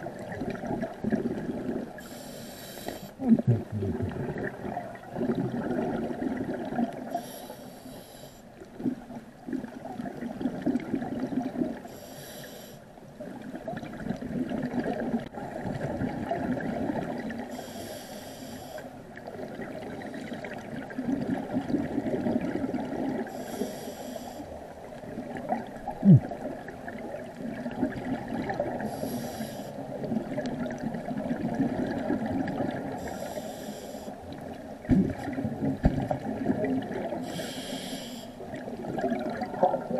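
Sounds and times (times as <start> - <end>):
exhaled bubbles gurgling: 0.0 - 7.4, 8.6 - 12.0, 13.2 - 17.8, 19.0 - 33.5, 34.2 - 39.9
regulator inhalation hiss: 2.0 - 3.2, 7.2 - 8.4, 11.9 - 12.8, 17.5 - 18.9, 23.3 - 24.5, 28.9 - 29.8, 33.0 - 34.2, 37.3 - 38.4.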